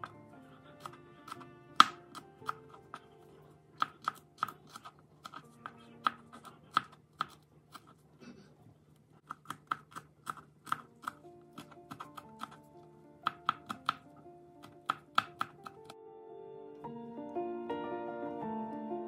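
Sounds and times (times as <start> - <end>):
knife chopping on cutting board: 0.8 - 3.1, 13.2 - 15.9.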